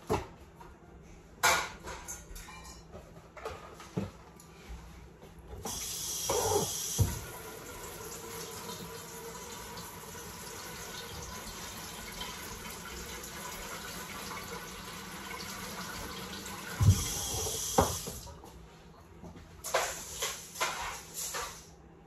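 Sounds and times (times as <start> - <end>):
tap water running into metal sink: 5.7 - 18.3.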